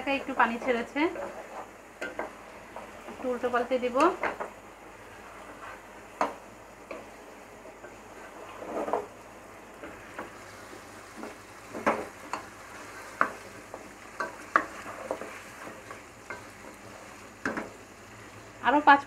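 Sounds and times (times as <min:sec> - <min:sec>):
meat sizzling: 0:00.0 - 0:19.0
wooden spatula scraping pot: 0:00.2 - 0:04.4, 0:07.8 - 0:09.2, 0:09.8 - 0:17.8.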